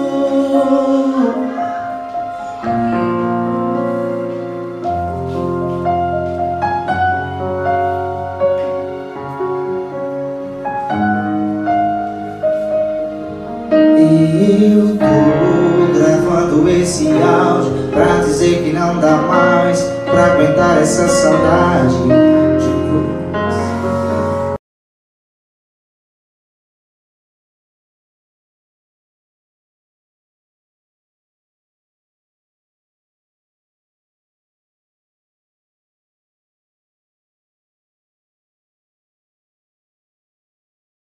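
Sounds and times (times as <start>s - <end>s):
man singing: 0.0s - 2.1s, 13.9s - 24.1s
electronic keyboard piano chords: 0.0s - 24.6s.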